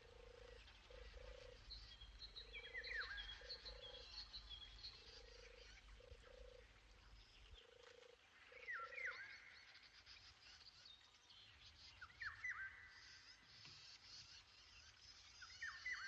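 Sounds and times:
low croaking animal call: 0.0 - 1.6.

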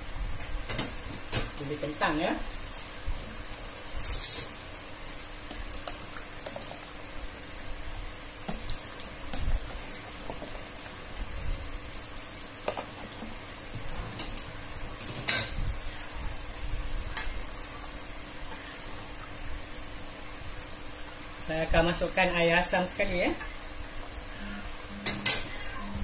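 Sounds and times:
curry simmering sizzle: 0.0 - 25.9.

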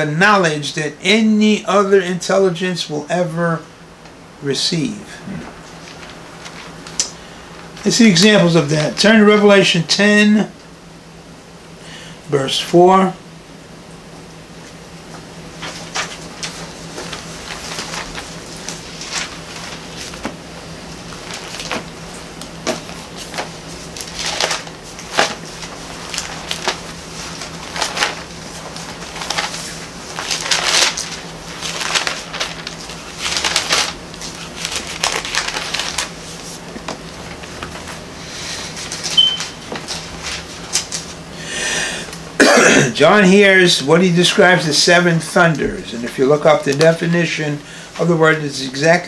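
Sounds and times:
thin pages rustling: 5.4 - 7.9, 14.7 - 20.4, 21.0 - 41.2.

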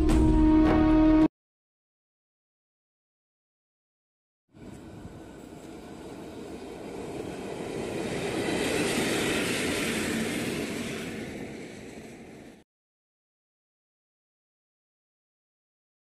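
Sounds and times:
electric locomotives passing: 4.5 - 12.6
wheel and rail noise: 4.5 - 12.6.

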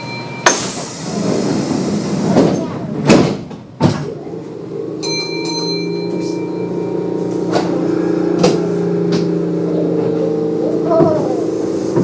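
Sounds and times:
two-stroke chime: 0.0 - 0.6, 5.0 - 7.6
train traction motor hum: 0.0 - 12.0.

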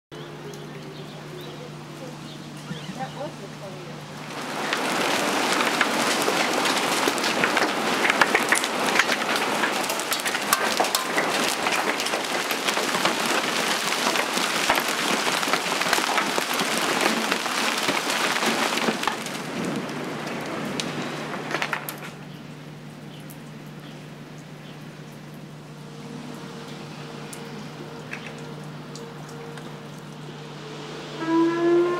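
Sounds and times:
heavy rain hissing: 0.2 - 22.3, 24.0 - 31.9
hail clattering: 4.2 - 22.2.

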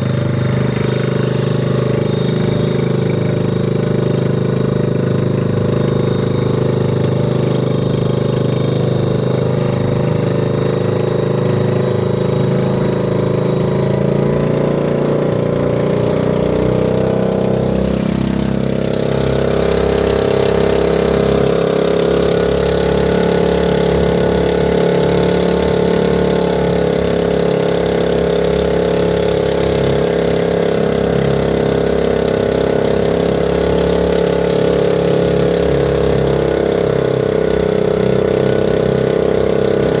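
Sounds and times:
boat engine droning: 0.0 - 40.0
water rushing past hull: 0.0 - 40.0.

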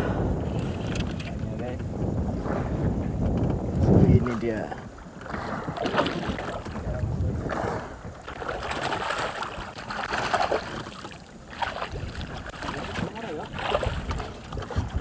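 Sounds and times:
wind on microphone: 0.0 - 15.0
fish splashing at water surface: 7.6 - 15.0.

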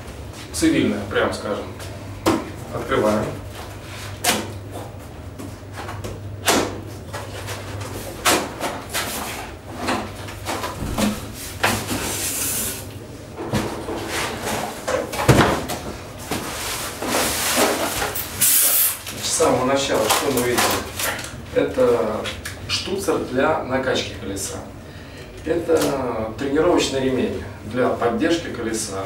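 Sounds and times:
packing paper rustling: 16.2 - 21.9.

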